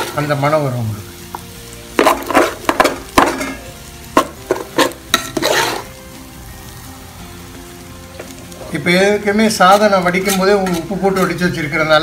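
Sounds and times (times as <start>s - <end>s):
metal spatula scraping a pan: 2.0s - 6.0s, 9.5s - 11.6s.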